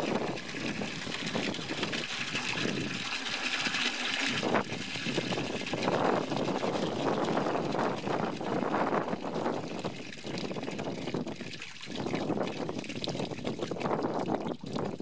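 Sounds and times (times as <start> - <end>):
water gushing from downspout: 0.0 - 15.0
water splashing into plastic bucket: 0.0 - 15.0.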